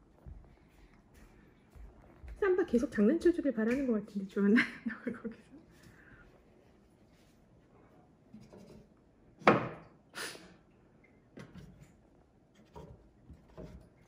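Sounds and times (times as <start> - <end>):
faint taps and rustles: 0.0 - 4.0.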